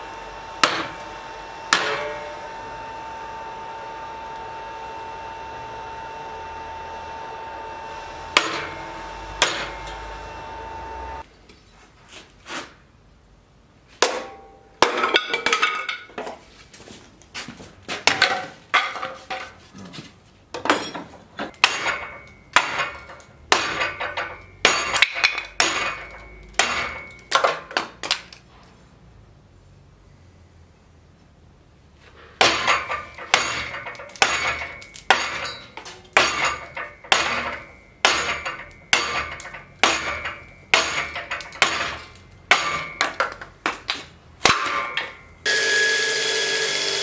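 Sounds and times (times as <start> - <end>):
steady hum: 0.0 - 11.3
machete chopping into wood: 9.4 - 9.8.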